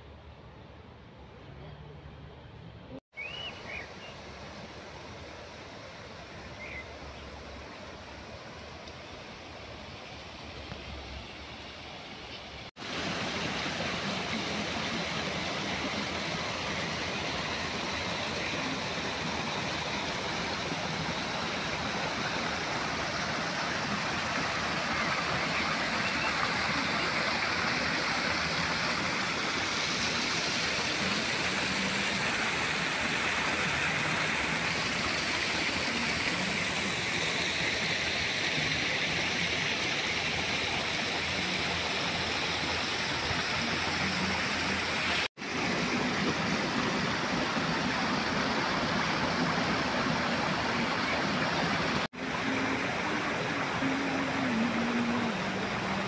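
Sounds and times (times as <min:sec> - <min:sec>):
stream rushing over rocks: 0:12.7 - 0:56.0.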